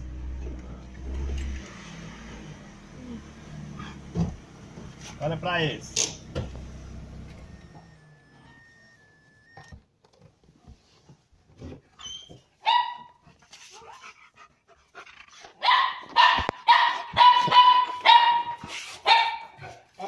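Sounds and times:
dog yelping and barking: 12.0s - 14.1s, 15.6s - 19.8s.

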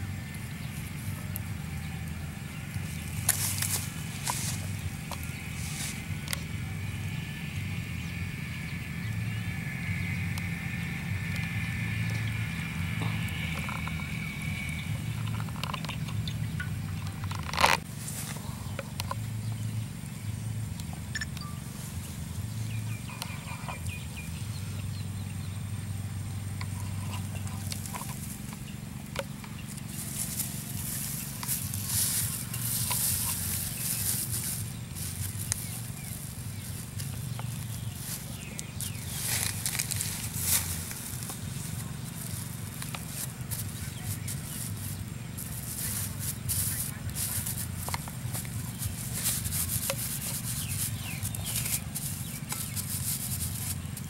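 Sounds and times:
steady low hum: 0.0s - 54.0s
plastic sheet crinkling: 29.9s - 54.0s.

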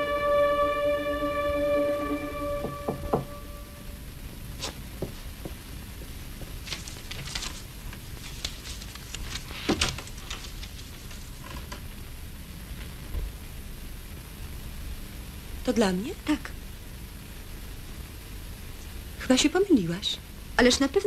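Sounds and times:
paper rustling: 4.6s - 4.8s, 6.4s - 11.7s.

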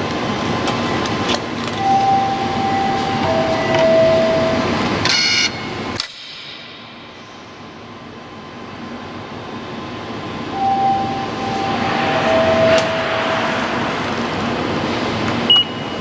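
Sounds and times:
train running noise: 0.0s - 6.0s, 6.6s - 16.0s
steady tones: 10.4s - 15.7s
short electronic keypad beep: 10.6s - 13.0s.

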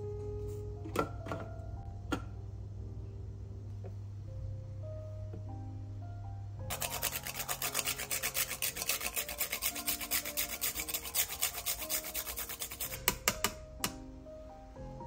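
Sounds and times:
nutmeg rasping on metal grater: 6.7s - 13.1s.

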